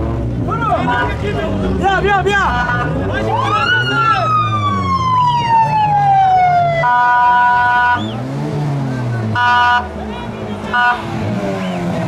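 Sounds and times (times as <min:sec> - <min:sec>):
engine revving: 0:00.0 - 0:12.0
electronic siren wailing: 0:03.2 - 0:08.0
multi-tone horn blast: 0:06.8 - 0:08.1, 0:09.3 - 0:10.0, 0:10.6 - 0:11.3.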